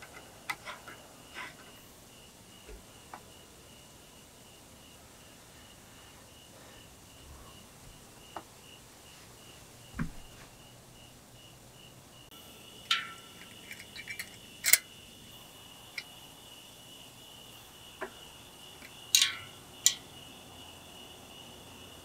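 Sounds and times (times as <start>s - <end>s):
crickets chirping: 0.0s - 22.0s
bicycle chain metallic clicks: 12.9s - 14.9s.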